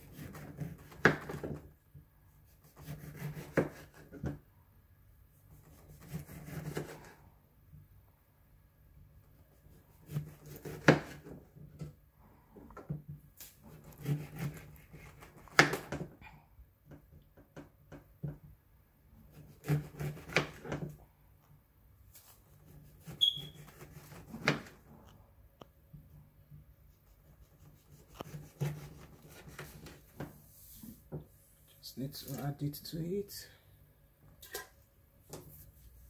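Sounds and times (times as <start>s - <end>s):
knife scraping board: 0.0s - 1.6s, 2.6s - 4.4s, 5.6s - 7.2s, 10.0s - 11.4s, 13.6s - 15.9s, 19.3s - 20.8s, 22.7s - 24.8s, 27.5s - 31.0s.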